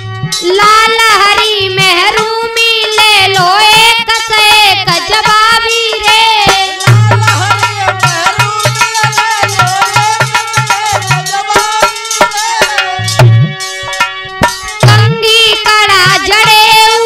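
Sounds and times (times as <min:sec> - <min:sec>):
held melody: 0:00.0 - 0:17.0
hand drum beat: 0:04.9 - 0:16.8.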